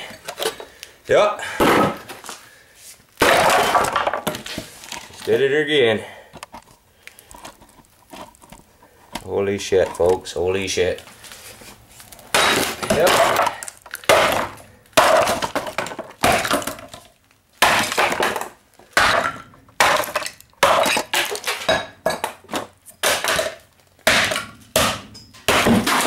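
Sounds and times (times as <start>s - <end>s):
axe smashing wood: 1.6s - 2.2s, 3.2s - 4.6s, 12.3s - 26.0s
wood splintering and debris scattering: 3.2s - 5.5s, 12.1s - 26.0s.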